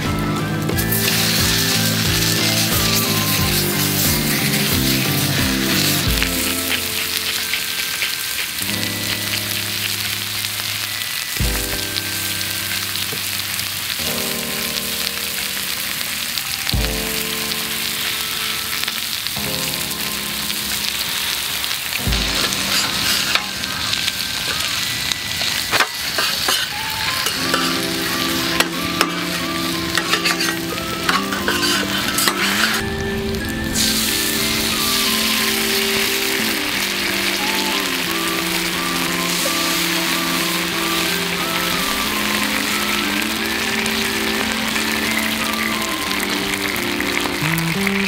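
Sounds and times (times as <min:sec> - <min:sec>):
pork sizzling on a griddle: 0:00.0 - 0:48.0
soft background music: 0:00.0 - 0:48.0
metal tongs scraping on a plate: 0:25.8 - 0:27.8, 0:30.0 - 0:32.8.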